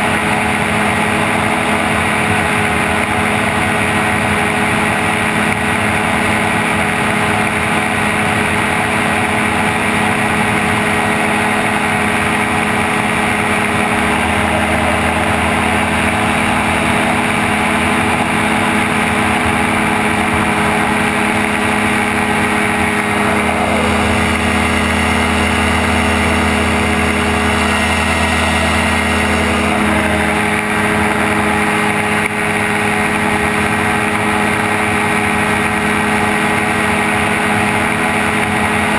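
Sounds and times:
aircraft engine and propeller: 0.0s - 38.9s
heavy wind rush: 10.8s - 33.7s.

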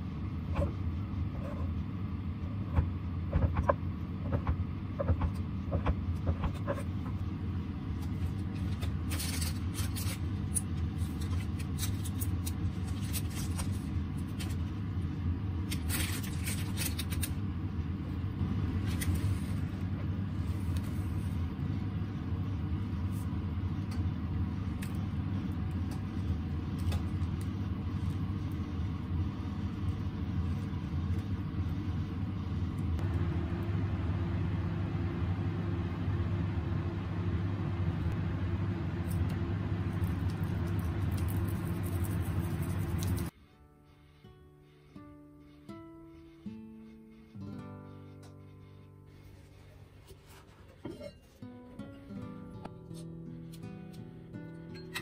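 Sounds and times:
low hum: 0.0s - 44.3s
baking parchment crinkling: 8.0s - 14.9s, 15.6s - 17.4s, 39.1s - 43.3s.

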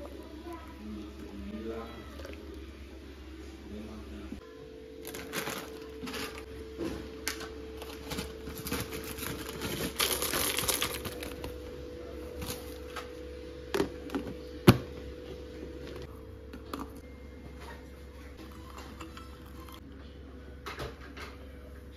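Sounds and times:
foil packaging crinkling: 5.0s - 6.5s, 7.2s - 11.6s.

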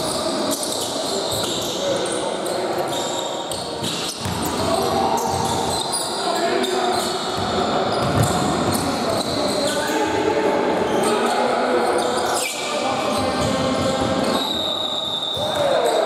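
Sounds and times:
basketball bouncing on wooden court: 7.4s - 8.8s.

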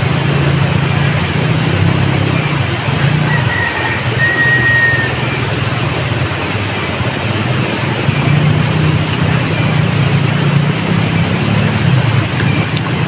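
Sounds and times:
outdoor rushing rumble: 0.0s - 13.0s.

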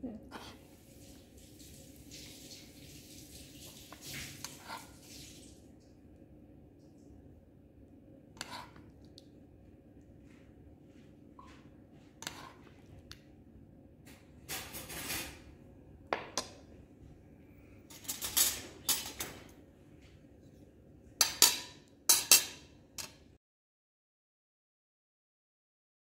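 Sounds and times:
cutlery clinking on pot and plate: 17.9s - 19.5s, 21.2s - 23.2s.

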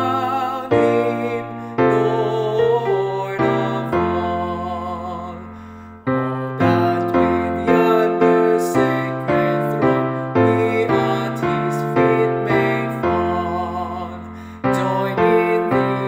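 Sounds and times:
keyboard playing hymn chords: 0.0s - 16.0s.

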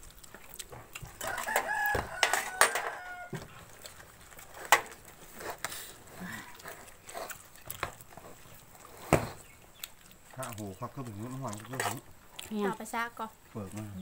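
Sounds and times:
spoons clinking against bowls: 1.2s - 3.0s
rooster crowing: 1.2s - 3.6s.

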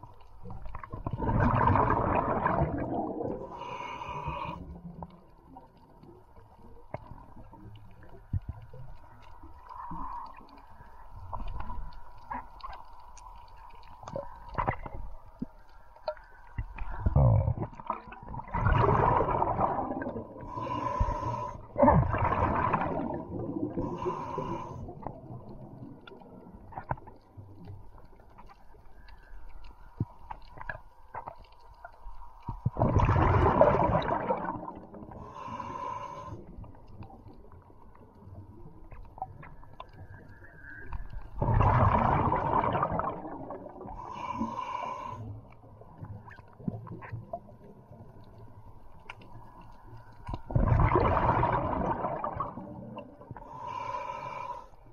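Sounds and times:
underwater bubbling exhalations: 0.0s - 5.2s, 16.6s - 27.0s, 32.6s - 35.8s, 41.3s - 44.6s, 50.3s - 53.9s
hissing breaths with whistle: 53.4s - 54.8s.

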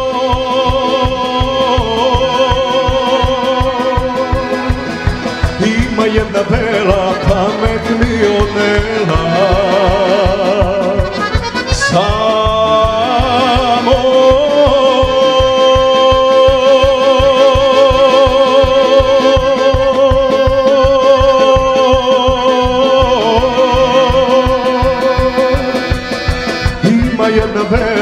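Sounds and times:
bass guitar: 0.0s - 28.0s
drum beat: 0.0s - 28.0s
man singing: 0.0s - 28.0s
violin: 3.5s - 15.3s.

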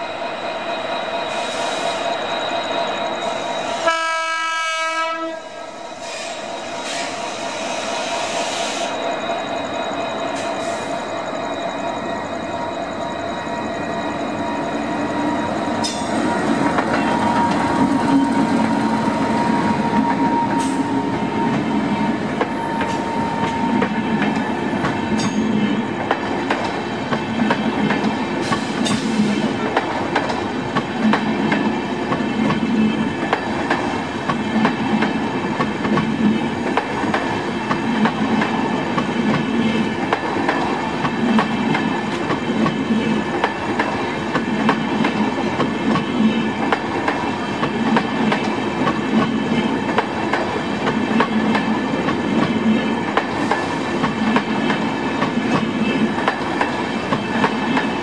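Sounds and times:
train rushing rumble: 0.0s - 58.0s
steady high tone: 5.3s - 25.8s.

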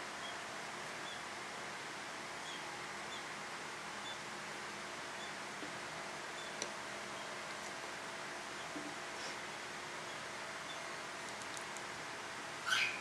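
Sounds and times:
steady background hiss: 0.0s - 13.0s
high bird chirps: 12.6s - 13.0s.

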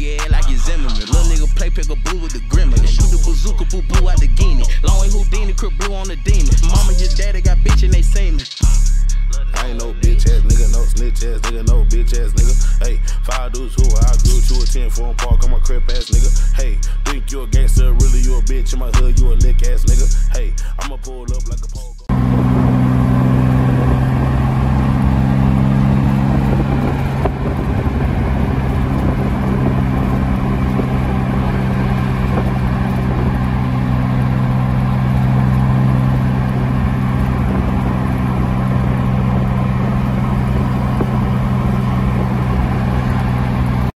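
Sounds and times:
rap track: 0.0s - 22.1s, 27.9s - 43.9s
car engine droning: 0.0s - 44.0s
tyre and wind noise: 22.1s - 43.9s.

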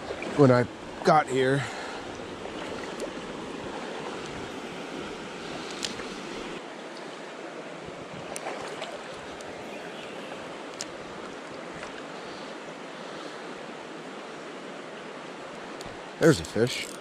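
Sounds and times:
river current rushing: 0.0s - 17.0s
faint sharp clicks: 10.7s - 11.0s.

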